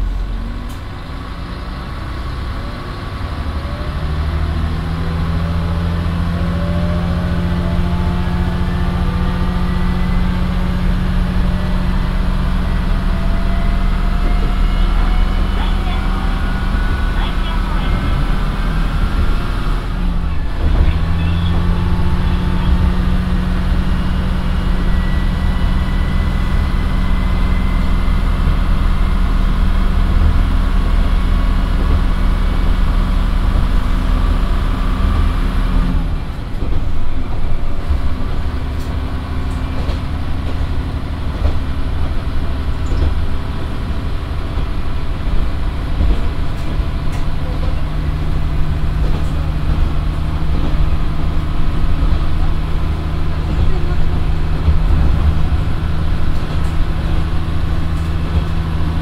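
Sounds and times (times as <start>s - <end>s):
diesel engine accelerating: 0.0s - 59.0s
wheels clattering over rail joints: 36.3s - 59.0s.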